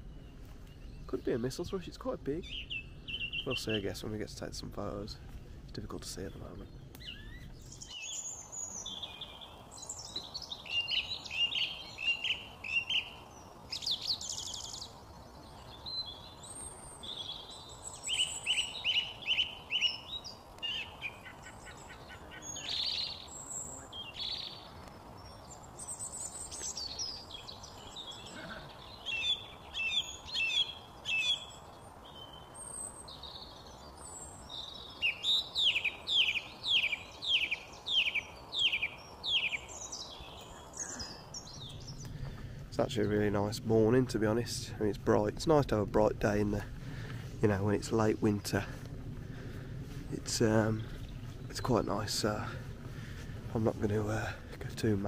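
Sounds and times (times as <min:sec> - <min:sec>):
faint background hiss: 0:00.0 - 0:55.0
song thrush singing: 0:00.0 - 0:55.0.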